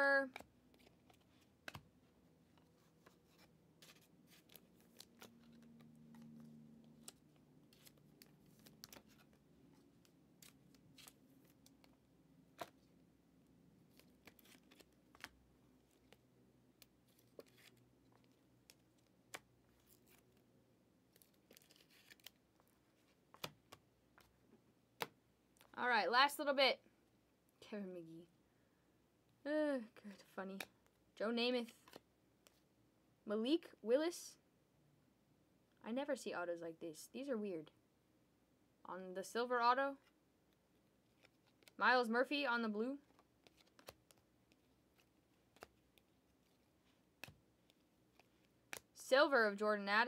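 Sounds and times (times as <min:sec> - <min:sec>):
trading cards clicking and rustling: 0:02.5 - 0:12.9, 0:13.9 - 0:20.4, 0:21.1 - 0:24.3, 0:43.1 - 0:46.6.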